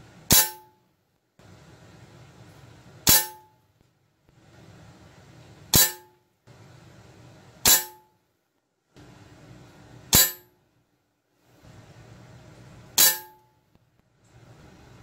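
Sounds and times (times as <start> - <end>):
metallic ring: 0.3 - 0.8, 3.1 - 3.6, 5.8 - 6.2, 7.6 - 8.2, 10.1 - 10.6, 13.0 - 13.6.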